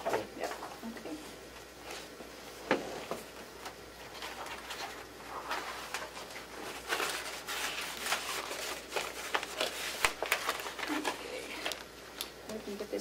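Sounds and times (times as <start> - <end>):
paper rustling: 2.9 - 12.3.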